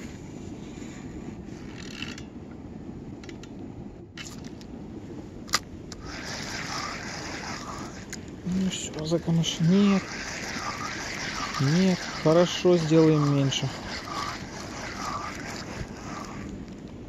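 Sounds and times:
wind buffeting microphone: 0.0 - 17.0
spinning reel winding: 6.0 - 16.6.

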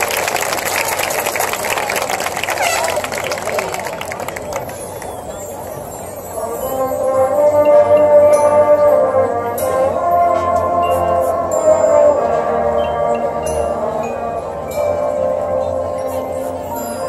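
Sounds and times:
brass chords: 6.3 - 17.0.

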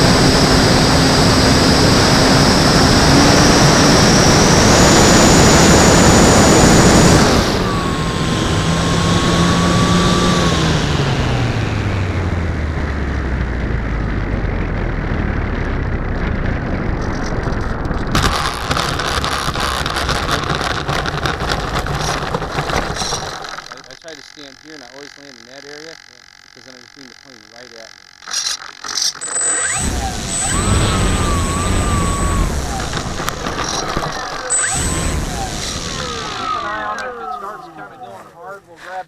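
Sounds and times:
electric motor whine: 0.0 - 38.2
landing gear rattling over dirt: 16.0 - 24.2, 28.2 - 36.9.

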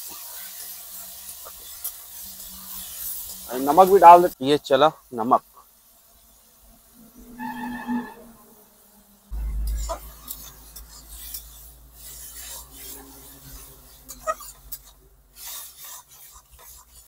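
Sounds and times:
metal spatula scraping a pan: 0.0 - 4.2, 7.1 - 8.4, 9.4 - 17.0
low steady rumble: 9.3 - 10.9.

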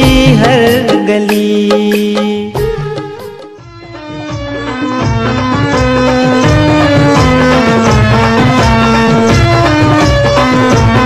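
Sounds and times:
light percussion beat: 0.0 - 3.6, 4.2 - 11.0.

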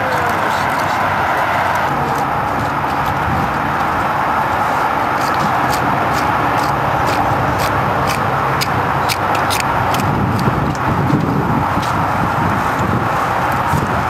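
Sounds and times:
loud steady rushing noise: 0.0 - 14.0
hand trowel scraping stony soil: 4.6 - 12.0.

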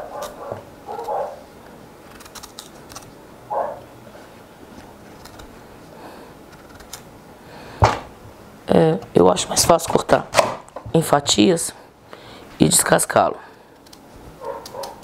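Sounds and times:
knife scraping vegetable peel: 2.1 - 3.1.

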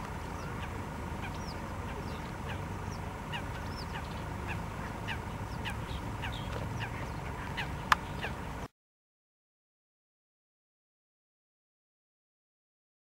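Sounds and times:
birds chirping: 0.0 - 8.7
faint steady hum: 0.0 - 8.7
steady low rumble: 0.0 - 8.7.

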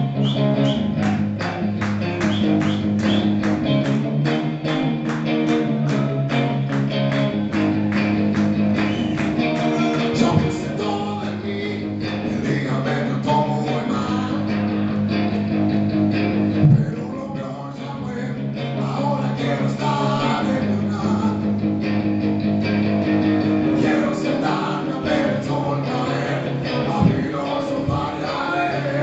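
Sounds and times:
electric guitar low notes: 0.0 - 29.0
sharp thump: 16.6 - 16.9.

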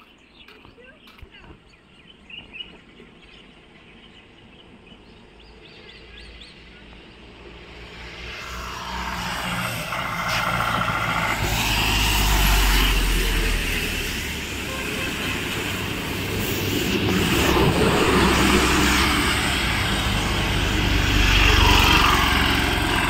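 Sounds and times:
van engine approaching: 5.0 - 23.0
tyres hissing on wet road: 6.3 - 23.0.

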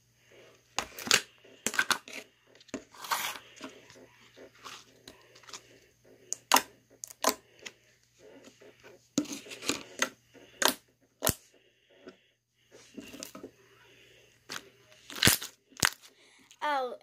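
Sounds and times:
slime crackling and popping: 15.1 - 16.1.

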